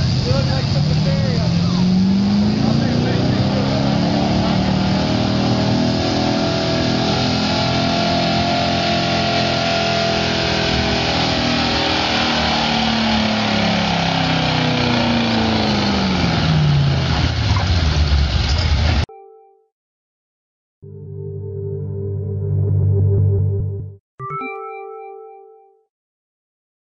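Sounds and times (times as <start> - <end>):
engine running under heavy load: 0.0 - 19.0.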